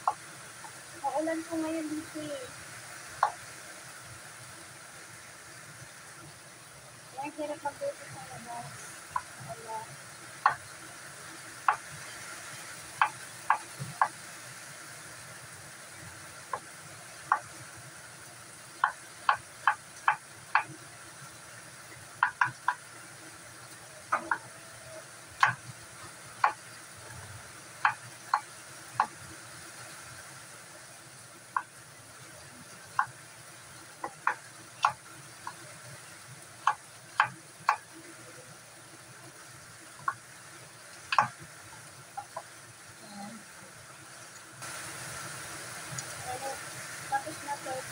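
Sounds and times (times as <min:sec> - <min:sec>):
knife tapping wooden chopping board: 0:10.4 - 0:10.6, 0:13.0 - 0:14.1, 0:17.3 - 0:17.5, 0:18.8 - 0:20.7, 0:22.2 - 0:22.8, 0:24.1 - 0:24.5, 0:25.4 - 0:25.6, 0:29.0 - 0:29.2, 0:34.0 - 0:35.6, 0:36.6 - 0:37.8, 0:41.1 - 0:41.4.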